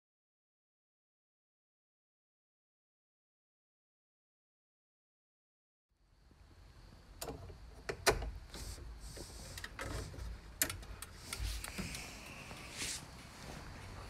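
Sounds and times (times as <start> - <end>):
sharp clicks and knocks: 7.2 - 12.1.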